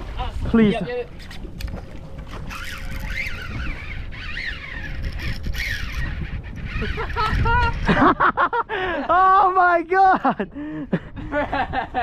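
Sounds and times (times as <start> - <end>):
wind and water rumble: 0.0 - 12.0
fishing reel drag whining: 1.1 - 8.0.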